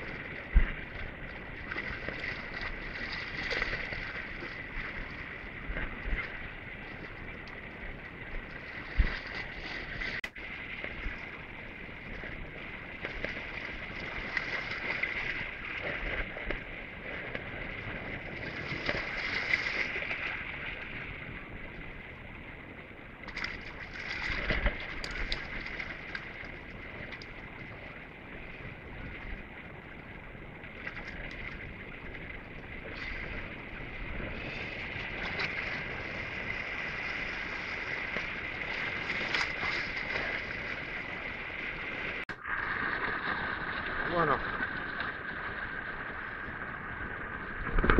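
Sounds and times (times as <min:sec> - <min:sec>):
wind on microphone: 0:00.0 - 0:47.9
small waves washing over rocks: 0:08.6 - 0:21.3, 0:23.3 - 0:29.5, 0:30.7 - 0:47.9.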